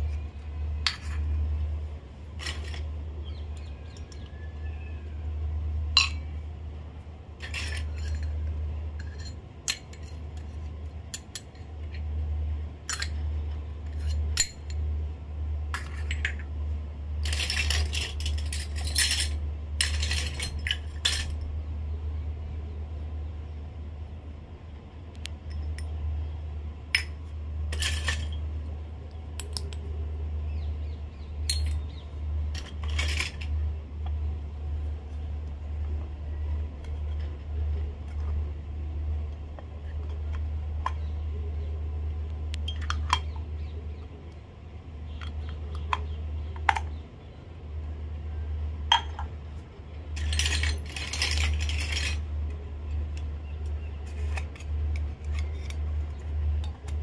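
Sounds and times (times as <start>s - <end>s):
steady low hum: 0.0s - 57.0s
metal toy cups clinking: 0.1s - 1.4s, 2.4s - 2.9s, 5.9s - 6.3s, 7.4s - 10.5s, 12.8s - 14.8s, 15.7s - 16.5s, 17.2s - 21.4s, 26.9s - 28.4s, 31.4s - 33.6s, 48.9s - 49.3s, 50.2s - 52.3s.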